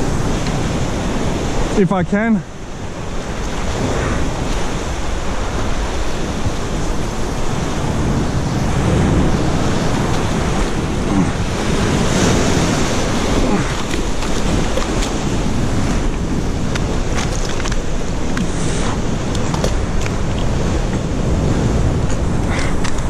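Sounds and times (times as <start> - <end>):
ocean surf washing ashore: 0.0 - 23.0
wind buffeting microphone: 0.0 - 23.0.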